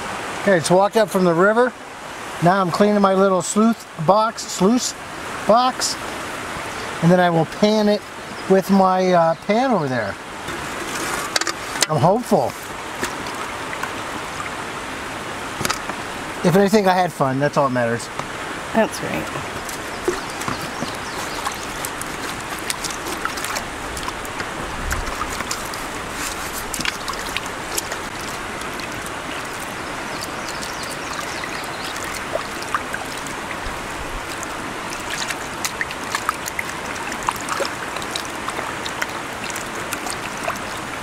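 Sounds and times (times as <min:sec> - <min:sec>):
flowing water rushing: 0:00.0 - 0:41.0
small splashes and drips: 0:10.4 - 0:14.7, 0:19.4 - 0:41.0
mats swished in water: 0:19.4 - 0:41.0
water pouring into tub: 0:19.5 - 0:41.0.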